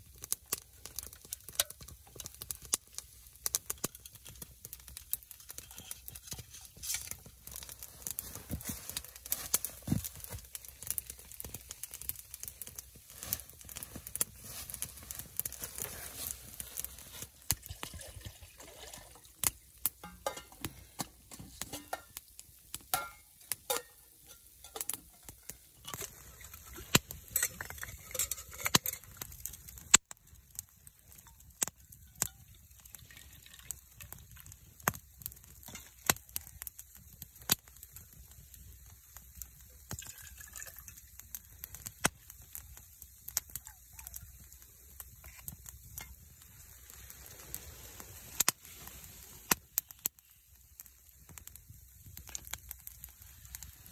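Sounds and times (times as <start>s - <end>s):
wood fire crackling and popping: 0.0s - 53.9s
metal cookware clinking: 5.6s - 7.1s, 20.0s - 22.2s, 22.9s - 26.1s, 27.3s - 29.1s.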